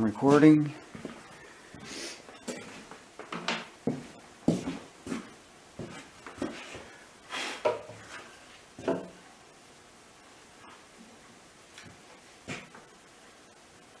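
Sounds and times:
wooden knocks and clunks: 8.8s - 9.2s.

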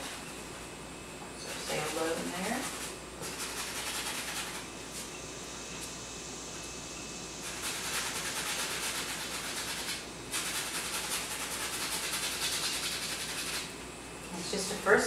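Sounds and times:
paintbrush scrubbing on canvas: 7.4s - 13.7s.

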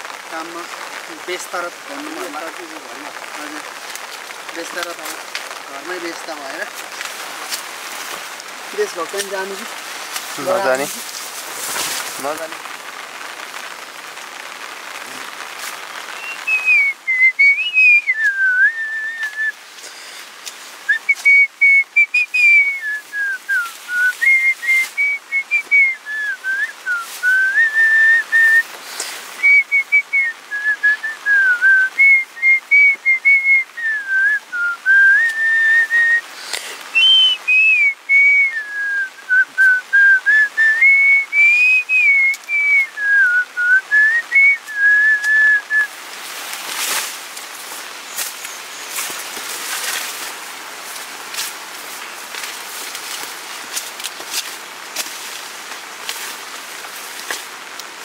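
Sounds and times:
person whistling: 16.2s - 19.6s, 20.9s - 28.7s, 29.4s - 36.2s, 37.0s - 45.9s.

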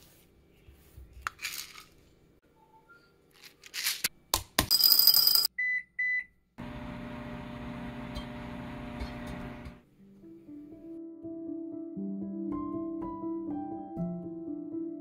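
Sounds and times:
microwave keypad beeps: 5.5s - 6.3s
microwave oven humming: 6.6s - 9.8s.

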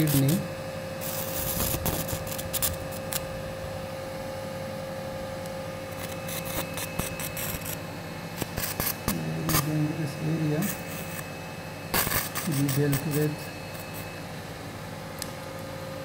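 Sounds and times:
steady electrical hum: 0.0s - 16.0s
person speaking: 12.4s - 13.6s.

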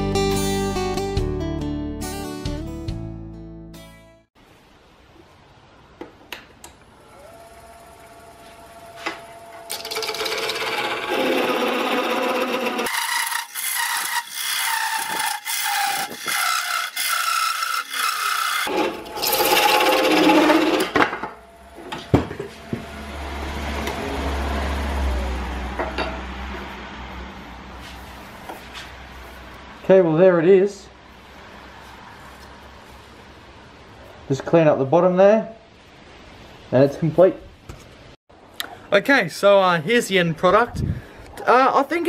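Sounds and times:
parting tool scraping spinning wood: 8.5s - 21.1s.

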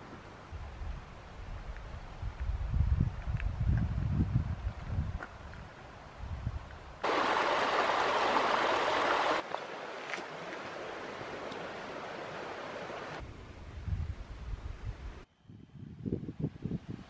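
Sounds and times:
wind rumble on microphone: 0.5s - 7.0s, 13.2s - 17.0s
stream water rushing: 7.0s - 13.2s.

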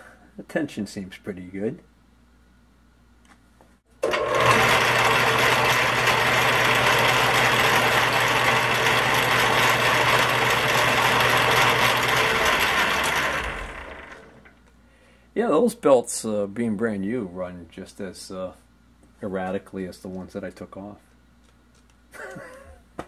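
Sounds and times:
lathe motor running: 4.0s - 14.6s.

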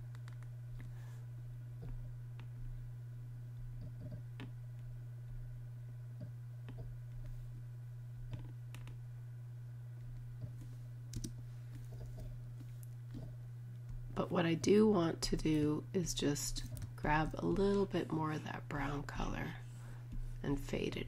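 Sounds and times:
steady low hum: 0.0s - 21.0s
computer mouse clicks: 0.1s - 0.5s, 11.1s - 11.4s.

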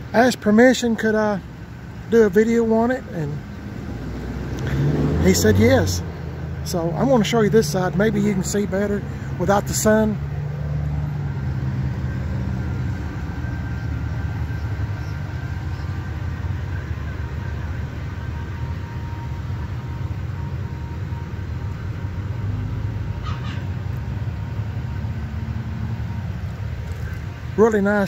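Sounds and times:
vehicle engine idling: 0.0s - 28.0s.

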